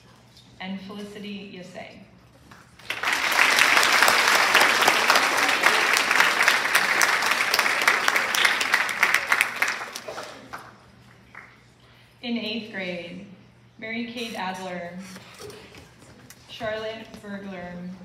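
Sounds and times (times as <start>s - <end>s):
large audience applauding: 2.7s - 11.6s.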